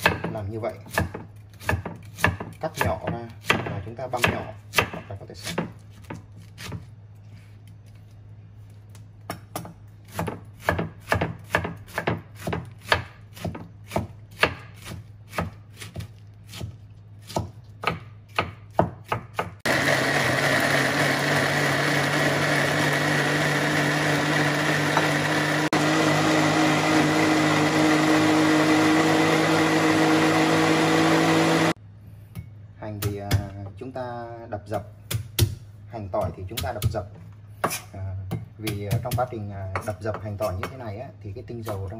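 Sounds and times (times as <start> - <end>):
cleaver chopping on wooden board: 0.9 - 6.8, 9.3 - 19.6
blender motor running: 19.6 - 31.8.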